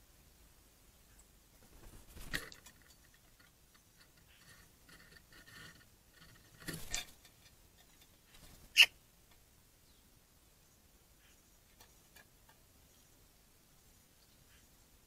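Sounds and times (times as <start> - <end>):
birds rustling and scuffing: 1.6 - 9.5, 11.2 - 14.7.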